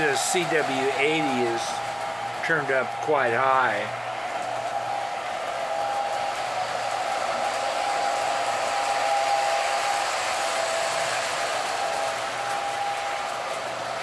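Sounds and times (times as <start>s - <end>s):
toy train motor whine: 4.3s - 14.0s
toy train rolling on track: 4.3s - 14.0s.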